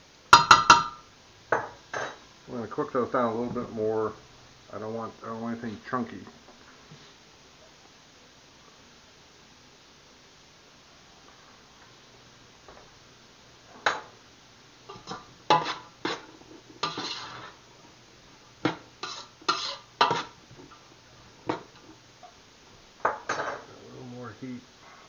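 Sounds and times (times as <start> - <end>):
utensil scraping metal pot: 14.9 - 17.6, 18.7 - 20.4.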